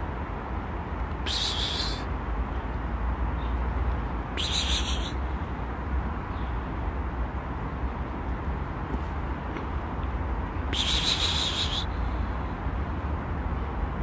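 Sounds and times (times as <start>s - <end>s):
squirrel calling: 1.2s - 2.1s, 4.3s - 5.4s, 10.7s - 12.2s.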